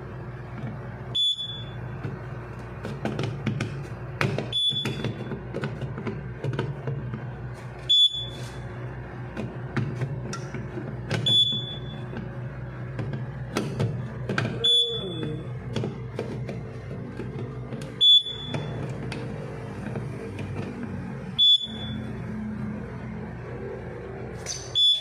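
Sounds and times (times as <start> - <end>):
low electrical hum: 0.0 - 25.0
high electronic alarm beep: 1.1 - 1.9, 4.5 - 5.2, 7.9 - 8.6, 11.2 - 12.1, 14.6 - 15.2, 18.0 - 18.7, 21.4 - 22.1, 24.6 - 25.0.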